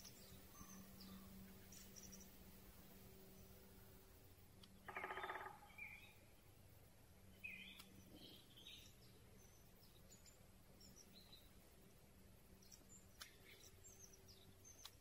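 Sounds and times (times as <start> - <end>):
birds chirping: 0.0 - 6.6, 7.2 - 15.0
faint steady hiss: 0.0 - 15.0
woodpecker drumming on wood: 4.8 - 5.7.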